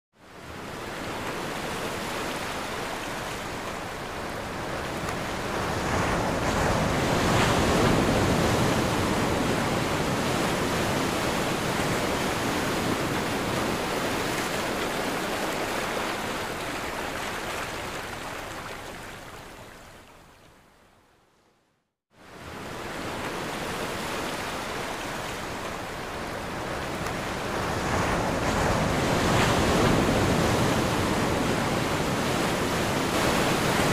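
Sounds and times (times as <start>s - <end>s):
ocean surf: 0.2s - 19.9s, 22.2s - 33.9s.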